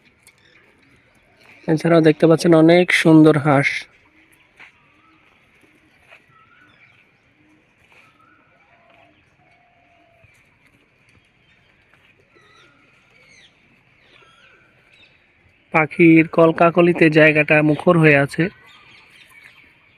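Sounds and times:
pigeons cooing: 0.0 - 2.1, 2.8 - 15.7
birds chirping and whistling: 0.0 - 19.9.

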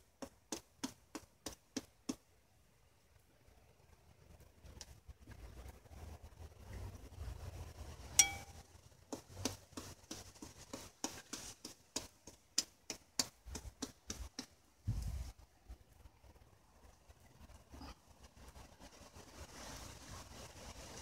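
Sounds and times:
sharp ringing clink: 8.2 - 8.6.

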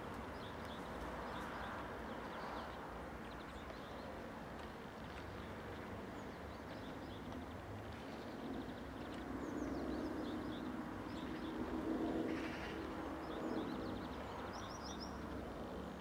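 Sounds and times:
distant airplane engine droning: 8.1 - 16.0.

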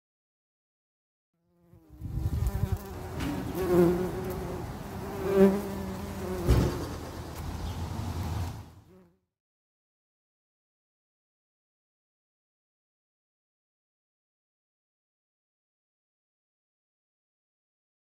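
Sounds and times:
bee buzzing: 1.4 - 9.3.

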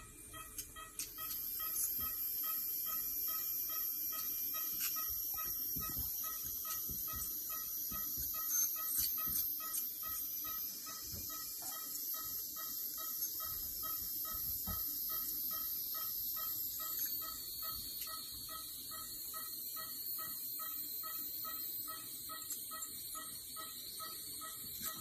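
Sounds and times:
dental scaler whine: 0.0 - 25.0.

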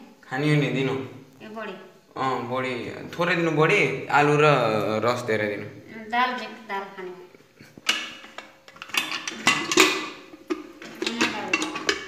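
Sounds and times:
metal spoon clinking on dishes: 7.8 - 12.0.

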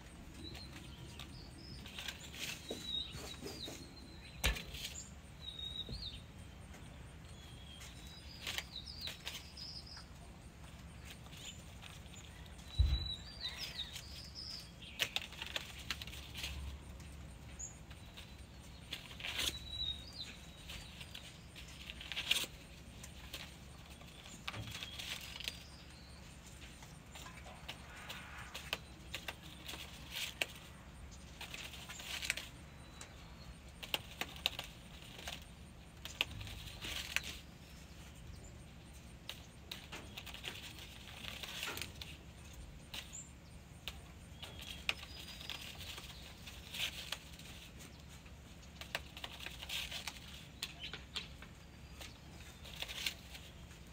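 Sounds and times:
low thump: 12.8 - 13.2.

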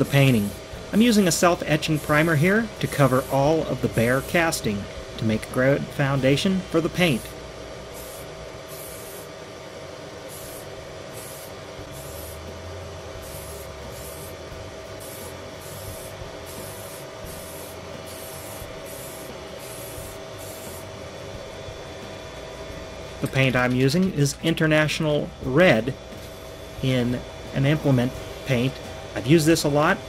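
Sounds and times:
steady hum: 0.0 - 30.0
aerosol spray bursts: 1.6 - 3.5, 7.9 - 9.3, 10.3 - 12.5, 13.2 - 14.4, 15.0 - 20.9.

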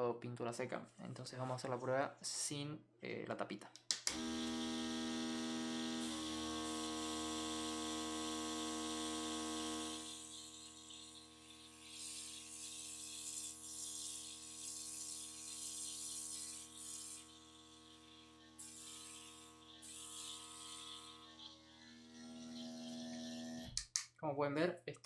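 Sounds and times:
airbrush spraying hiss: 10.2 - 21.2.

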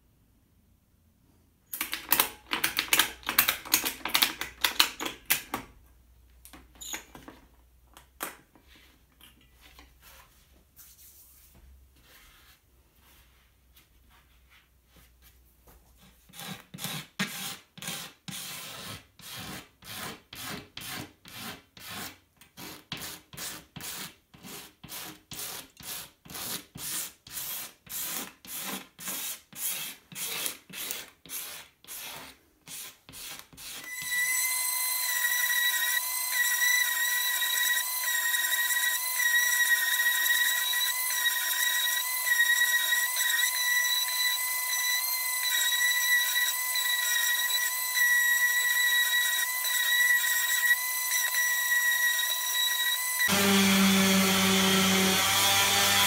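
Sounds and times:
orbital sander whining: 33.8 - 56.0.

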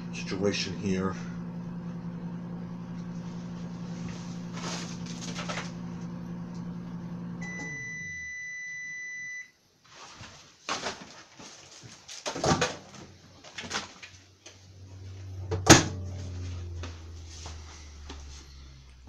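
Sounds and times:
microwave oven humming: 0.0 - 9.5, 14.5 - 19.0
microwave long beep: 5.9 - 9.6.

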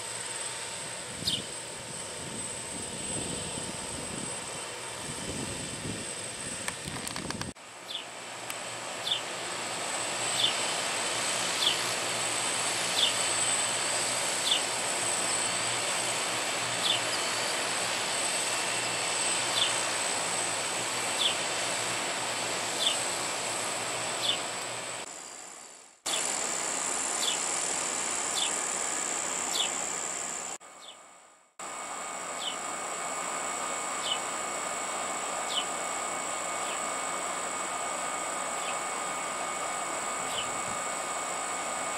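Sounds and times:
insects trilling: 6.8 - 8.2, 8.9 - 31.0, 31.6 - 41.9
insect chirp: 25.1 - 31.0, 35.4 - 35.8.

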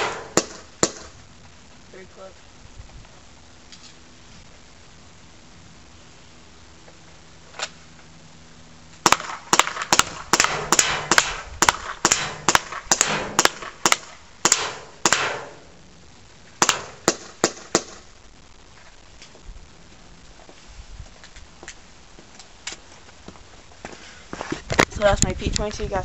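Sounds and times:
gas pistol shots popping: 0.0 - 1.1, 9.0 - 15.7, 16.6 - 18.0.

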